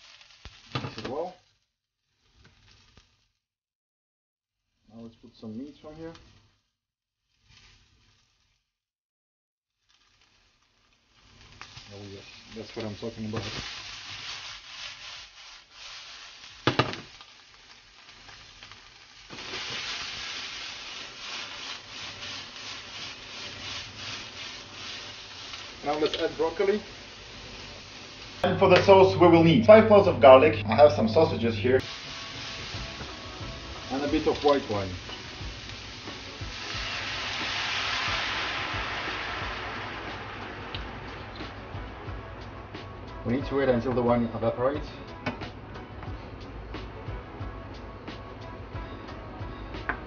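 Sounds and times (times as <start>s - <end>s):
meat sizzling in a frying pan: 0.0s - 3.4s, 4.7s - 8.7s, 9.8s - 29.2s, 31.8s - 44.7s.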